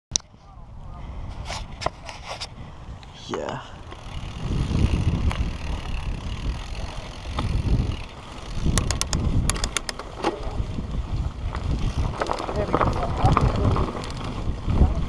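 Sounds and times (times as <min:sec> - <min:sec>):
wind rumble on microphone: 0:00.1 - 0:15.0
bike tyres rolling on dirt: 0:00.4 - 0:15.0
sharp clicks: 0:08.6 - 0:10.1.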